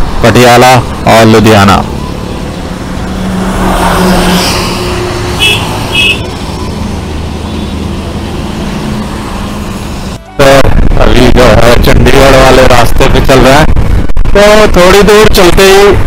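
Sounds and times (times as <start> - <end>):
wind and road noise: 0.0 - 16.0.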